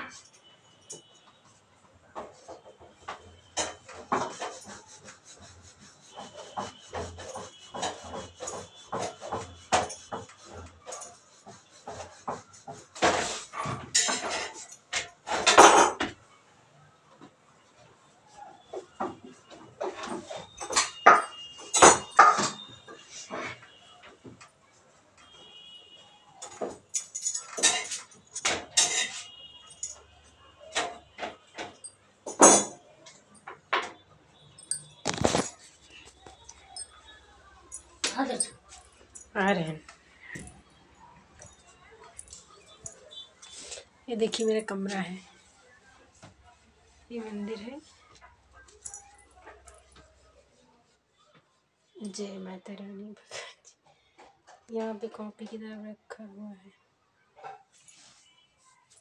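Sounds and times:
metal utensils and pots clattering: 2.0 - 16.2, 18.7 - 24.6, 26.4 - 40.7
rolling pin rolling dough on board: 2.1 - 16.2.

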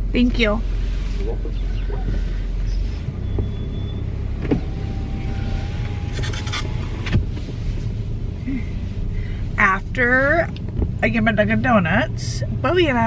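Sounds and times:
low car rumble: 0.0 - 13.0
power window motor whine: 3.2 - 7.3.

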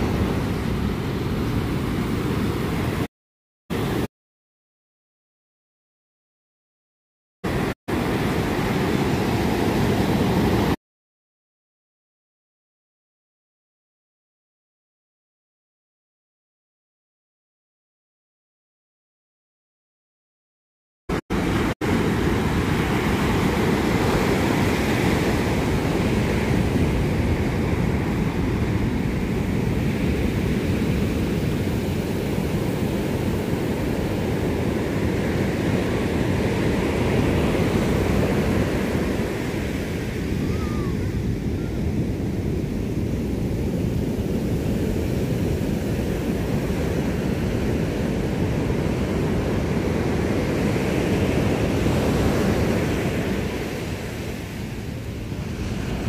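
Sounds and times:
ocean surf breaking: 3.8 - 4.1, 7.5 - 10.8, 21.1 - 56.0
wind on microphone: 21.4 - 56.0.

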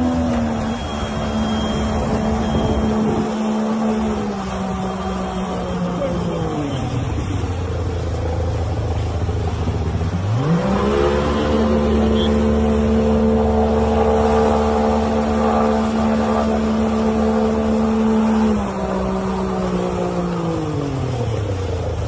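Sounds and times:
vehicle engine revving under load: 10.0 - 20.7.

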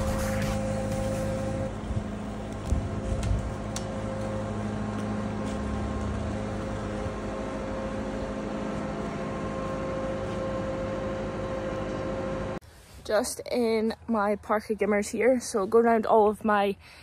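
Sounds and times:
vehicle engine droning: 0.0 - 12.6.

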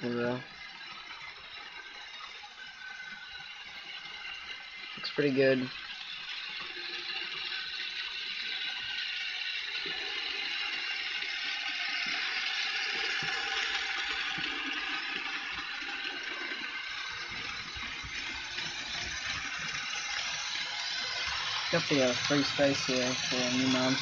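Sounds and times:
model train whirring rattle: 0.0 - 24.0.

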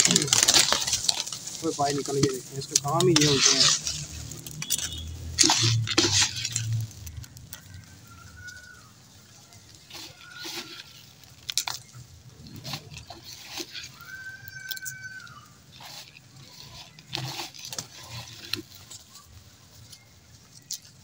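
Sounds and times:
wing flutters: 0.0 - 19.4
pigeons pecking on stone floor: 0.0 - 21.0.

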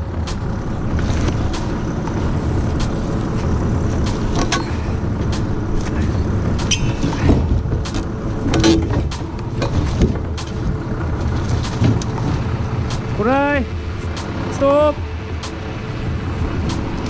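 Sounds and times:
forklift engine running: 0.0 - 17.0
sharp clicks and knocks: 4.0 - 10.8.

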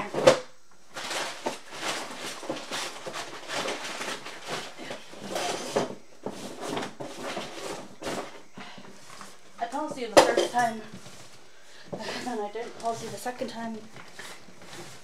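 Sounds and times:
rustling and light knocking: 1.0 - 15.0.

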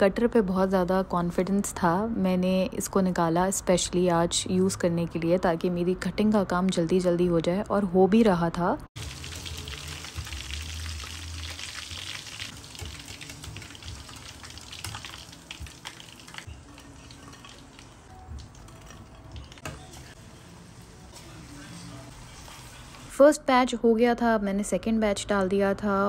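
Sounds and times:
chicken sizzling in hot oil: 9.0 - 23.2.

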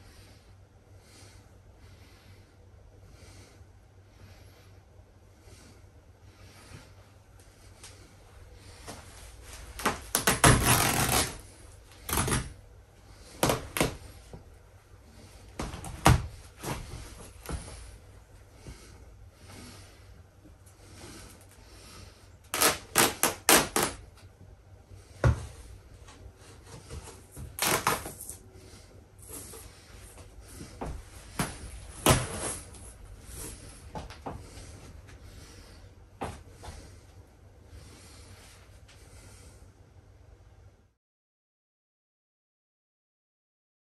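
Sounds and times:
plush fabric ripping: 9.8 - 12.6, 22.5 - 24.0, 27.6 - 28.4.

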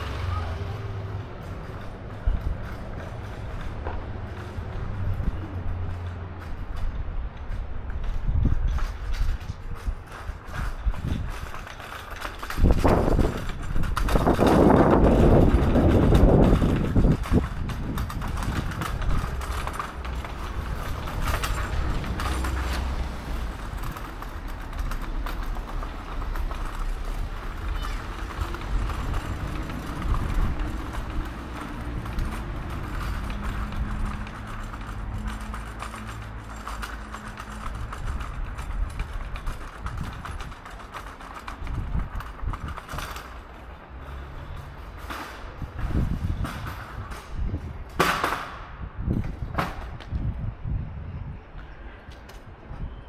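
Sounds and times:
footsteps on pavement: 0.0 - 53.0
low street rumble: 0.0 - 53.0.

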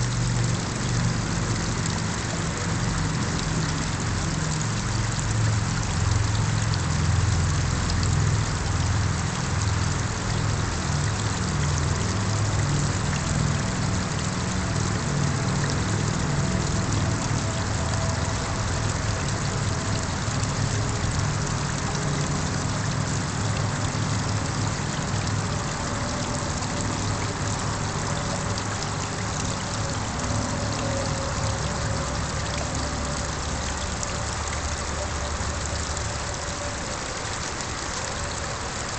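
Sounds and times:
small waterfall splashing: 0.0 - 38.9.

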